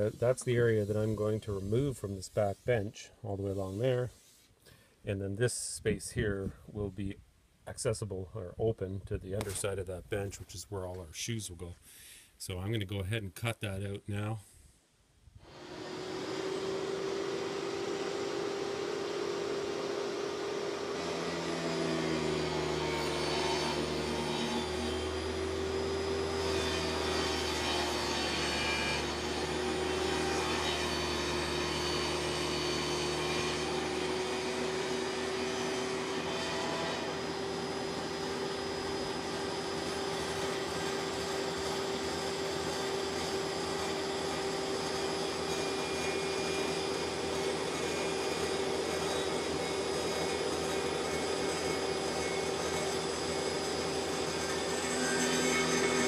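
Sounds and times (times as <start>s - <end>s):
table saw cutting wood: 0.0s - 4.0s, 15.4s - 56.0s.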